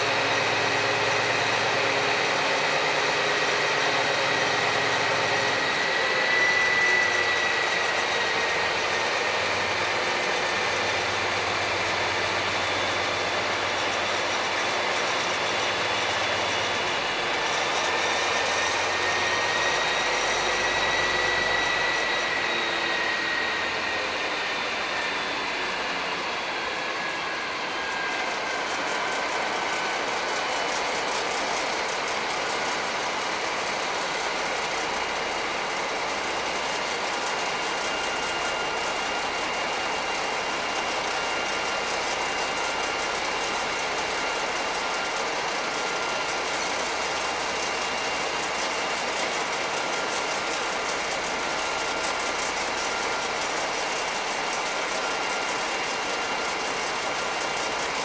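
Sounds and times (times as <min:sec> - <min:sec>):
faint high whine: 0:00.0 - 0:58.0.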